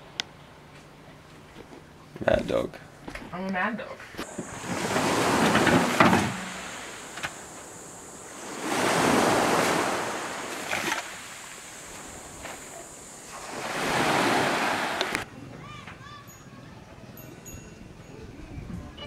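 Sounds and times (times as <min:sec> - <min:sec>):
small waves washing up beach: 0:04.2 - 0:15.3.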